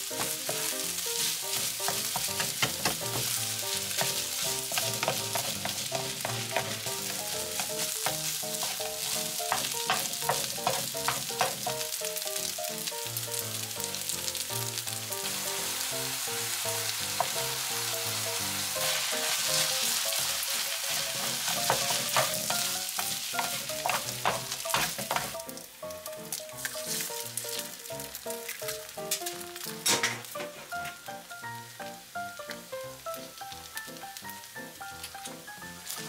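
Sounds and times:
spatula scraping a pan: 0.0s - 11.8s, 18.8s - 25.4s, 26.5s - 27.1s
fried rice sizzling in a pan: 0.0s - 36.0s.

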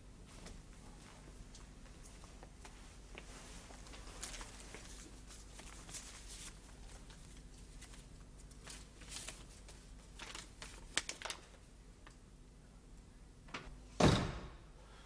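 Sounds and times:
faint rustling and handling: 0.3s - 11.6s.

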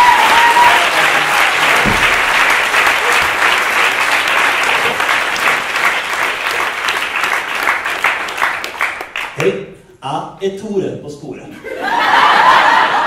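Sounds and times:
audience applauding: 0.0s - 9.4s
low thud: 1.8s - 2.7s.

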